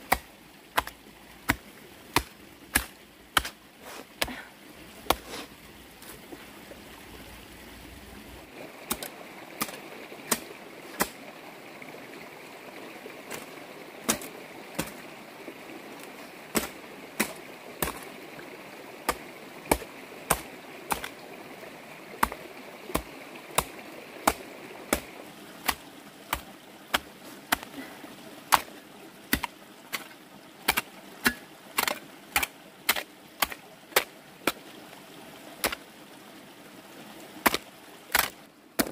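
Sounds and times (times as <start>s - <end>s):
digging tool striking ground: 2.2s - 3.6s, 13.3s - 15.0s, 16.5s - 18.0s, 29.3s - 30.1s, 30.7s - 34.6s, 37.5s - 38.9s.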